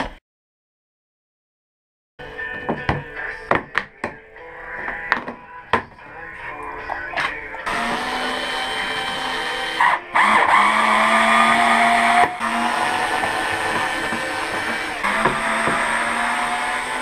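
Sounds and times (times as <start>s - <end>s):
electric screwdriver whirring: 7.6s - 17.0s.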